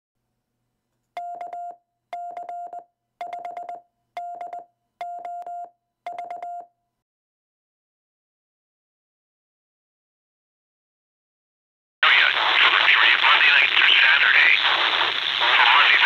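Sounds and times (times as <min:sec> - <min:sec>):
morse code beeps: 0:01.2 - 0:06.8.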